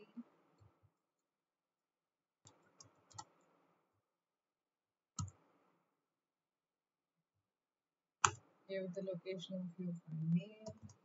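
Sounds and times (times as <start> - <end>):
computer mouse and keyboard clicks: 2.4 - 3.5, 5.2 - 5.4.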